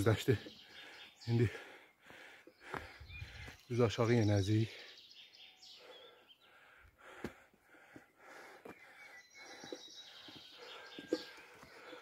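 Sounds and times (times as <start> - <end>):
small birds chirping: 0.0 - 12.0
footsteps on dirt road: 1.5 - 3.7, 7.0 - 12.0.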